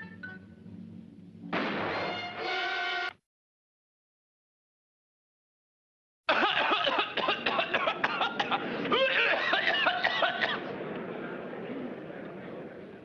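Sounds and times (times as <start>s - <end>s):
loud laughter: 6.3s - 10.7s.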